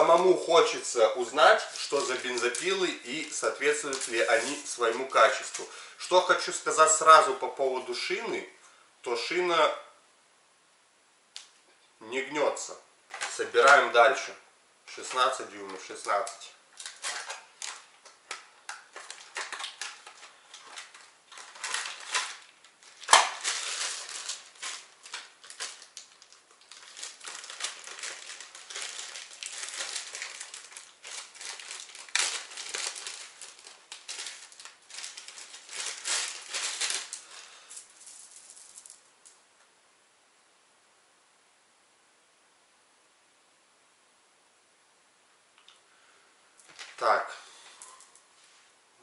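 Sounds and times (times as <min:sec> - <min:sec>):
plastic packaging crinkling: 0:00.0 - 0:06.7, 0:14.9 - 0:39.4, 0:46.6 - 0:48.2.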